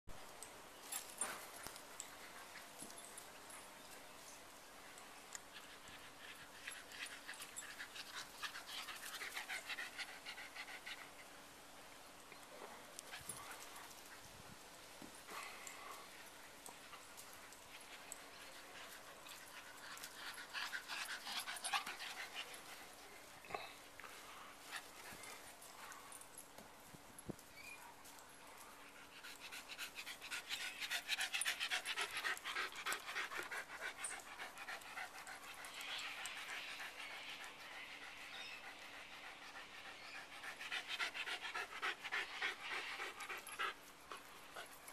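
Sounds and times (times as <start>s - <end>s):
dog panting rapidly: 37.8s - 44.8s.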